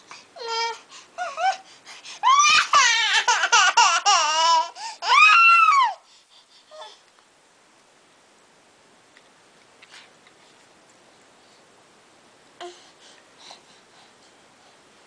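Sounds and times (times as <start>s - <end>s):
baby crying: 2.2s - 6.0s.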